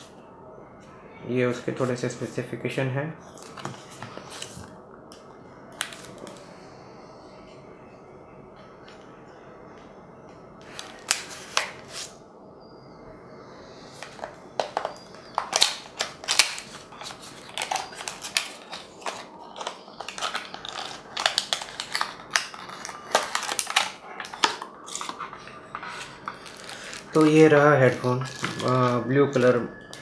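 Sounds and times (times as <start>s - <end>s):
cardboard and plastic crinkling: 14.0s - 30.0s.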